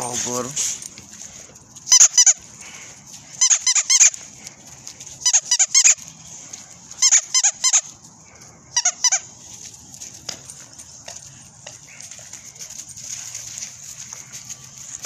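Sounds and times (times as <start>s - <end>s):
squeaky toy squeaking: 1.9s - 2.4s, 3.4s - 4.2s, 5.2s - 6.0s, 6.9s - 8.0s, 8.8s - 9.3s.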